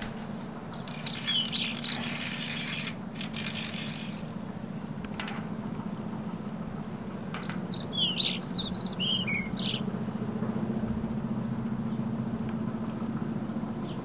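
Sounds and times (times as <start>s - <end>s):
steady low hum: 0.0s - 14.0s
songbird chirping: 0.2s - 2.3s, 6.8s - 9.9s.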